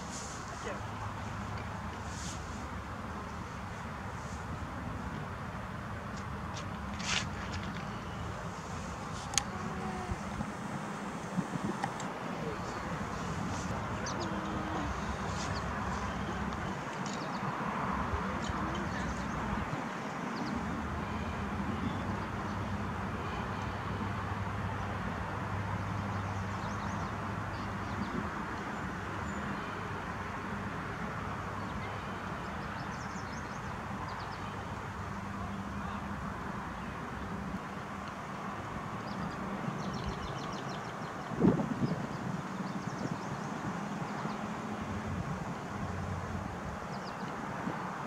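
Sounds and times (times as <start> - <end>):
small birds chirping: 7.8 - 17.7.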